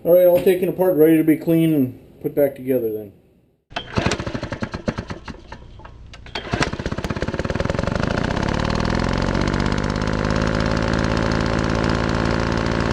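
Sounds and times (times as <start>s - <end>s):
engine starting and running: 3.7s - 12.9s.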